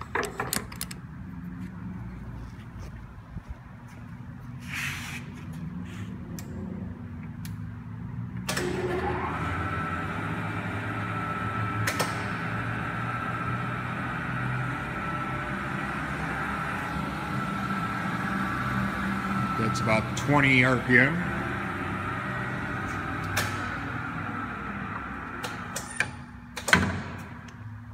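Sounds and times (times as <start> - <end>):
lathe gear whine: 8.6 - 26.2.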